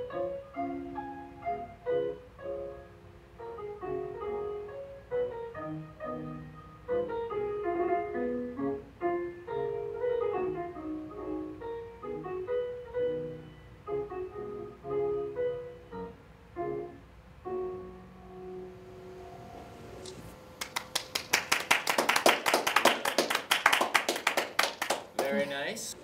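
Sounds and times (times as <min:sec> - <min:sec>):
grand piano playing: 0:00.0 - 0:21.3
group clapping: 0:20.6 - 0:25.8.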